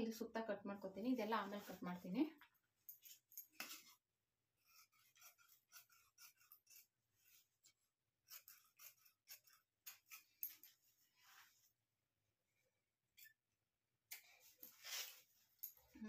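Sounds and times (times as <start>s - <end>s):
shears snipping fabric: 4.7s - 10.8s.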